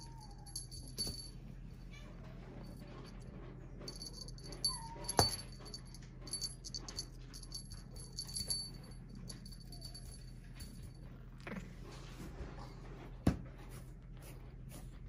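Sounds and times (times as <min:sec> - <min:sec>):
small bell jingling: 0:00.0 - 0:02.0, 0:02.6 - 0:11.0.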